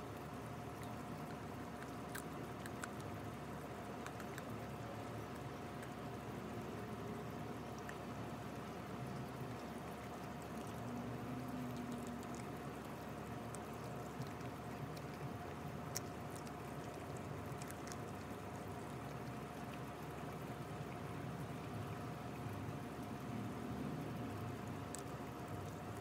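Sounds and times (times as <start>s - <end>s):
background hiss and hum: 0.0s - 26.0s
puppy chewing wet smacking: 0.6s - 6.4s, 7.4s - 21.1s, 24.7s - 26.0s.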